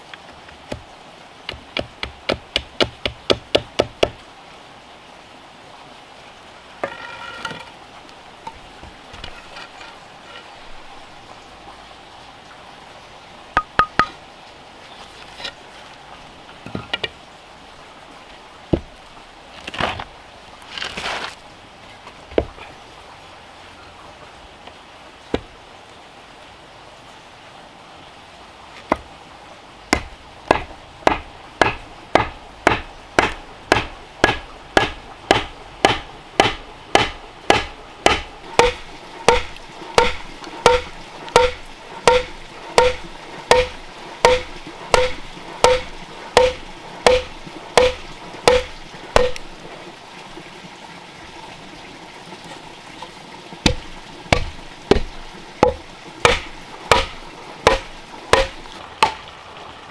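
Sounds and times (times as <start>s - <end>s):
hammer blows on wooden wedge: 30.0s - 49.5s, 53.7s - 58.6s.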